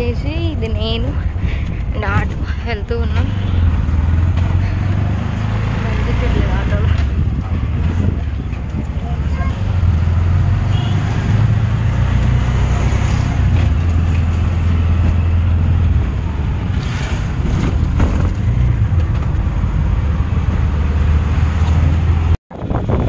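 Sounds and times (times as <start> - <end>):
wind on microphone: 0.0 - 10.5, 11.2 - 23.0
auto-rickshaw engine droning: 0.0 - 23.0
road noise: 0.0 - 23.0.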